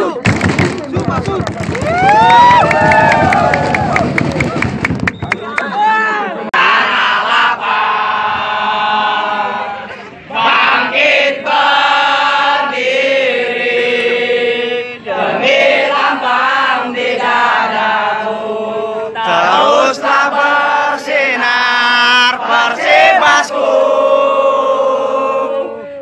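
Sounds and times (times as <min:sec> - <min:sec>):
football supporters chanting: 0:06.5 - 0:26.0.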